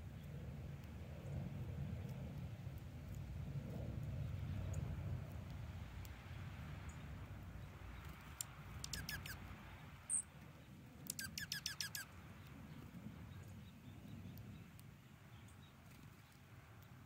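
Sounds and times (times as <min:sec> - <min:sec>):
small songbird calls: 0:06.9 - 0:16.4.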